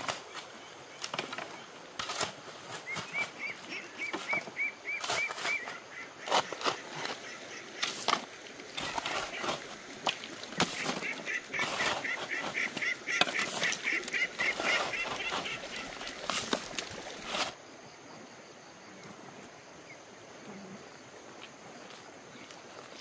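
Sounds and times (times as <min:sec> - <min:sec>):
ducks quacking: 0:10.6 - 0:16.2.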